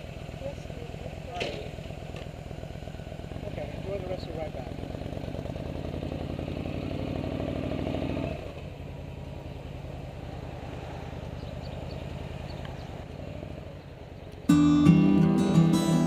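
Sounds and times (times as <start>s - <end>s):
motorcycle engine running: 0.0s - 16.0s
acoustic guitar music: 14.5s - 16.0s.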